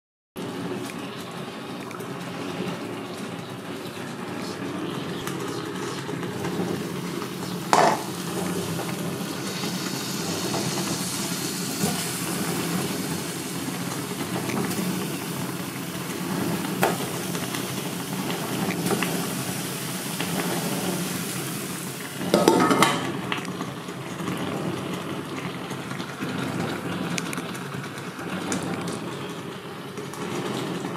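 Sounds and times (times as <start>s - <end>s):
pot and utensils clattering: 7.7s - 8.2s, 22.2s - 23.5s.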